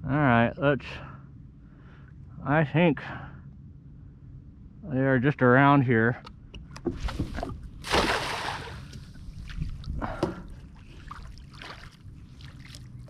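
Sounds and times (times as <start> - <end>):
soft water sounds: 6.9 - 13.0
net splashing into water: 7.0 - 9.9, 10.8 - 12.9.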